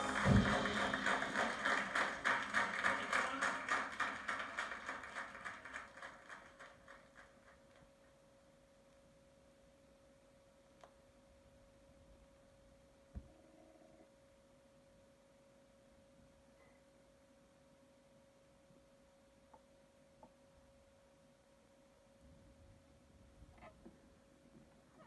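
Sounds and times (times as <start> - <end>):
music from a vinyl record: 0.0 - 1.6
low noise: 0.0 - 25.0
faint steady tone: 8.6 - 22.7.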